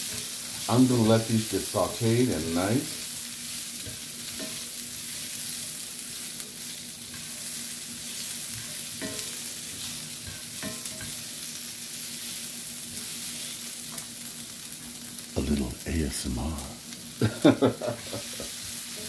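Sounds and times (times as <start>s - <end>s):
vegetables sizzling in a skillet: 0.0s - 19.0s
spatula scraping a pan: 3.4s - 13.7s.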